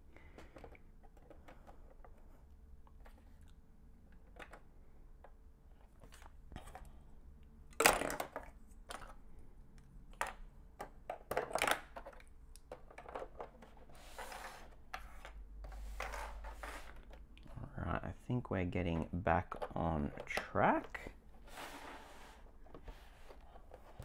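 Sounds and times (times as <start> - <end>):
plastic bricks clicking and clattering: 7.7 - 9.2, 10.1 - 13.8.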